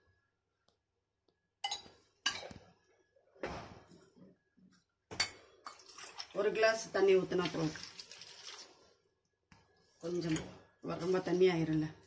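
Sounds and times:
spoon clinking against metal cookware: 1.6s - 2.6s.

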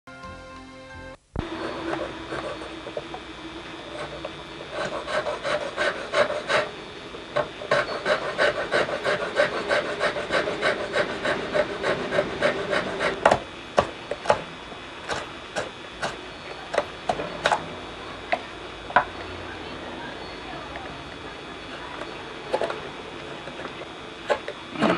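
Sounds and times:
file scraping wood: 1.5s - 3.2s, 3.8s - 14.4s.

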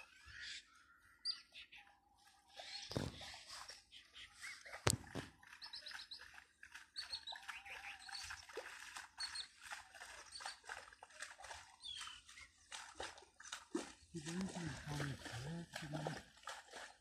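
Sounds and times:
small birds chirping: 0.0s - 8.5s, 9.1s - 10.8s, 11.5s - 13.0s.

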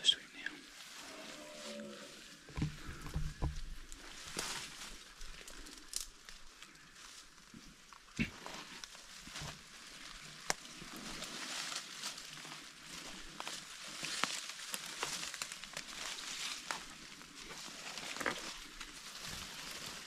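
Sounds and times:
footsteps crunching through leaves: 0.7s - 2.5s, 3.6s - 7.7s, 8.5s - 20.0s
twigs snapping: 5.3s - 6.7s, 10.2s - 10.7s, 13.3s - 16.9s.

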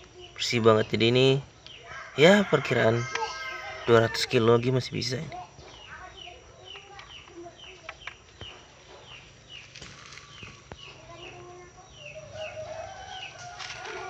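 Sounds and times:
bird chirping: 0.0s - 14.0s
sharp clicks: 6.7s - 8.5s.

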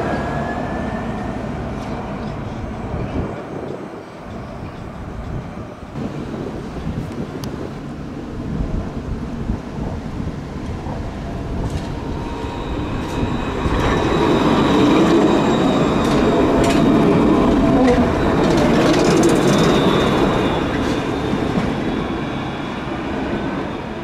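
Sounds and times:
tram rolling on track: 0.0s - 24.0s
wheels clicking on rails: 9.8s - 21.8s
high wheel squeal: 12.2s - 24.0s.

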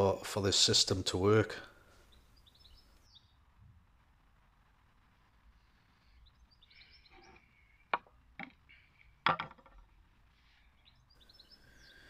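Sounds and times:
faint birds chirping: 0.0s - 12.0s
wooden clicks and knocks: 7.9s - 8.6s, 9.2s - 9.9s.

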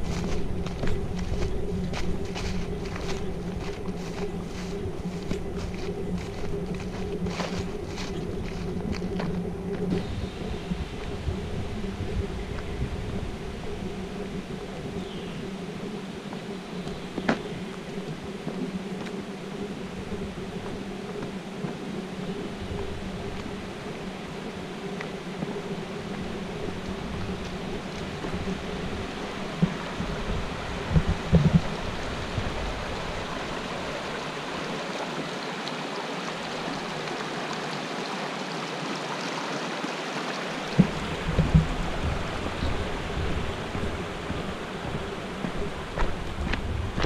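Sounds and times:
water rushing over spillway: 26.8s - 47.0s
low thumps: 40.7s - 47.0s.

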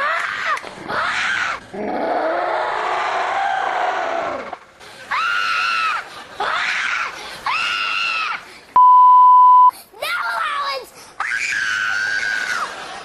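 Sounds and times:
censor bleep: 8.8s - 9.7s.

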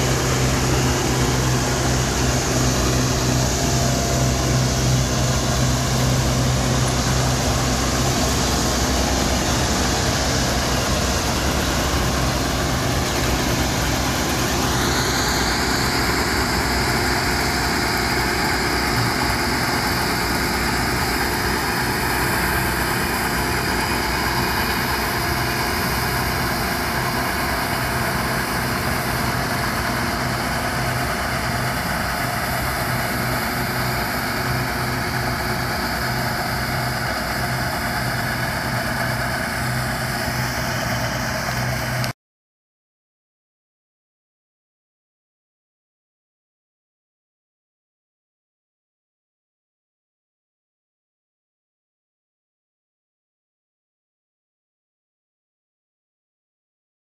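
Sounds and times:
high machine whine: 0.0s - 42.1s
combine harvester engine drone: 0.0s - 42.2s.

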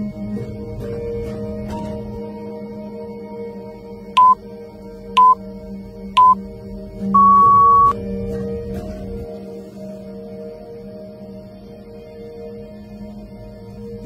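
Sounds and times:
soft background music: 0.0s - 14.0s
countdown timer beeps: 4.2s - 4.4s, 5.2s - 5.4s, 6.2s - 6.4s, 7.2s - 8.0s.

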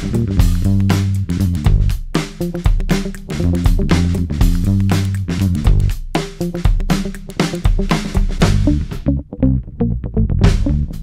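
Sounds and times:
punchy beat: 0.0s - 9.6s, 10.2s - 11.0s
guitar and bass instrumental: 0.0s - 11.0s.

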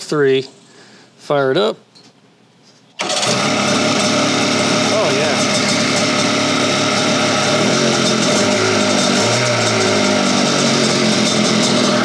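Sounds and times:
two-stroke engine revving lightly: 3.0s - 12.0s.

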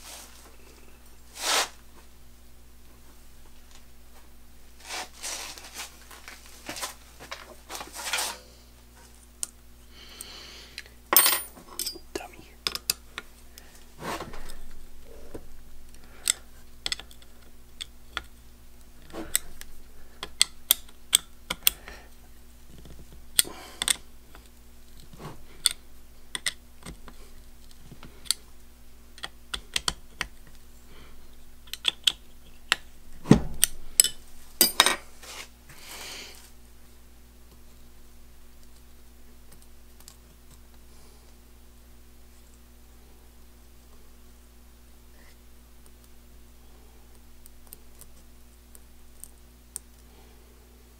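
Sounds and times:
steady low hum: 0.0s - 50.9s.

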